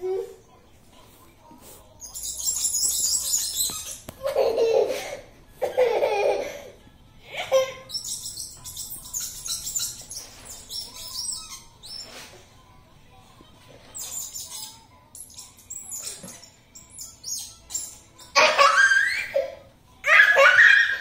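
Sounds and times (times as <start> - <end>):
foam blocks squeaking on glass: 2.0 - 4.2, 7.5 - 12.5, 13.9 - 21.0.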